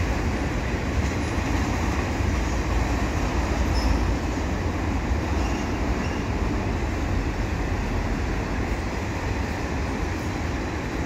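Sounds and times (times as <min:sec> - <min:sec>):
steel wheels rumbling on rail: 0:00.0 - 0:11.0.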